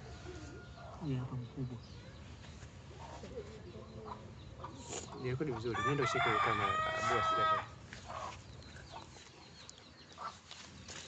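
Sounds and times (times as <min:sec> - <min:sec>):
rooster crowing: 0:05.8 - 0:07.8.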